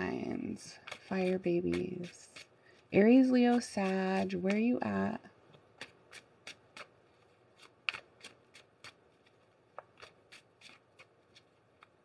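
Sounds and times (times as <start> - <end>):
cards being shuffled: 5.5 - 12.0.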